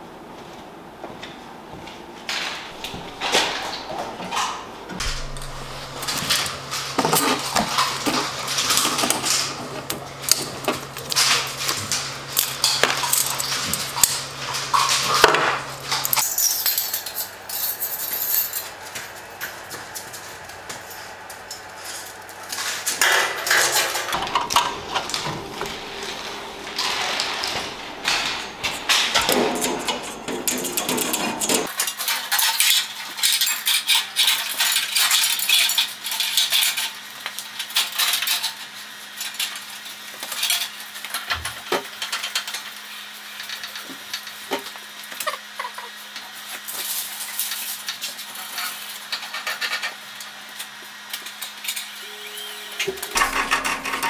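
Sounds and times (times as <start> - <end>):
steady low hum: 2.6 - 31.7.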